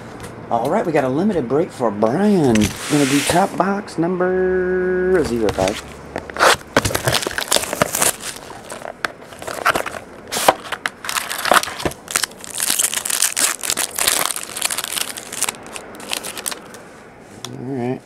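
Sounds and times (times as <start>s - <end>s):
foil wrapper crinkling and tearing: 6.4s - 16.8s.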